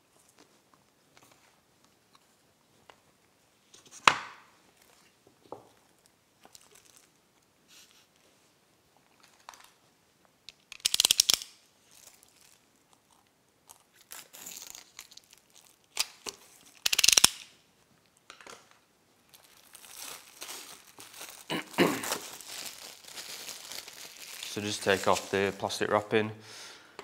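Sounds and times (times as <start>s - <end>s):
plastic crinkling: 5.8s - 7.2s, 10.7s - 17.4s, 19.2s - 25.7s
plastic wrap ripping: 13.9s - 17.4s, 19.3s - 25.6s.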